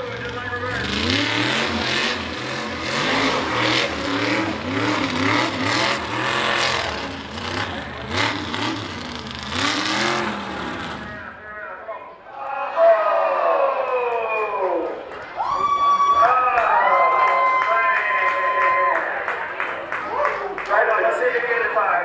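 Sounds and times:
truck engine revving: 0.0s - 11.5s.

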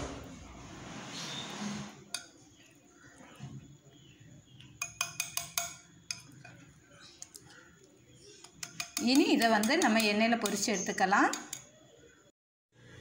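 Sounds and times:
whisk clicking against bowl: 4.8s - 6.6s, 8.4s - 10.7s.

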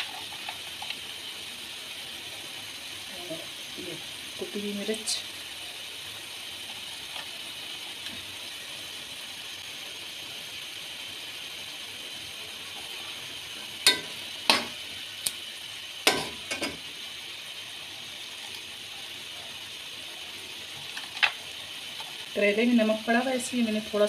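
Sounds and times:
meat sizzling in a pot: 0.0s - 24.0s
metal spoon clinking against pot: 13.9s - 14.7s.

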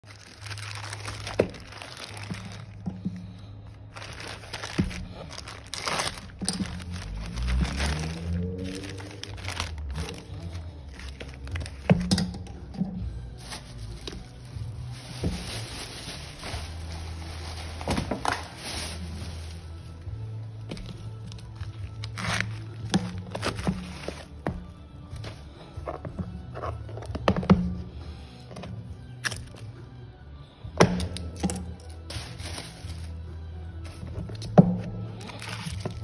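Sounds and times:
plastic mailer crinkling: 0.0s - 2.9s, 3.9s - 11.9s, 13.5s - 19.5s.

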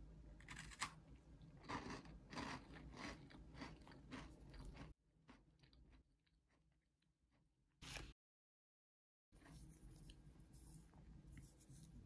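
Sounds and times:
biscuit crunching: 0.4s - 6.6s.

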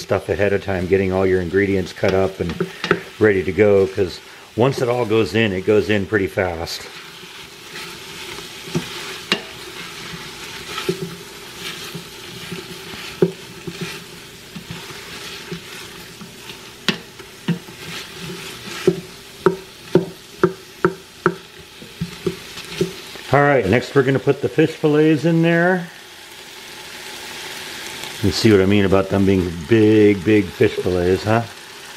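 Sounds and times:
vegetables sizzling: 0.0s - 31.9s
wooden spoon knocking against pot: 2.5s - 3.1s, 8.7s - 9.6s, 11.8s - 13.9s, 18.8s - 23.0s.

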